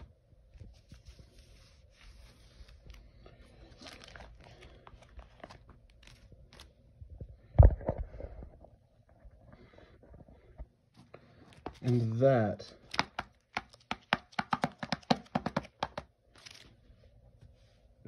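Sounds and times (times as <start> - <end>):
plastic pages crinkling: 0.5 - 6.9, 11.4 - 13.9, 16.3 - 16.8.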